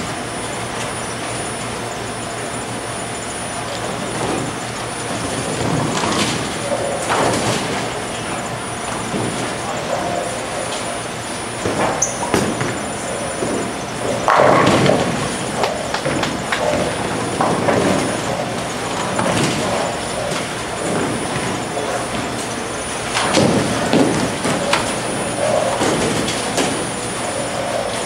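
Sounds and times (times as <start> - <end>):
voices: 1.8 - 28.0
bowling ball rolling on wooden lane: 5.1 - 28.0
bowling pins crashing: 11.6 - 22.4, 23.0 - 27.8.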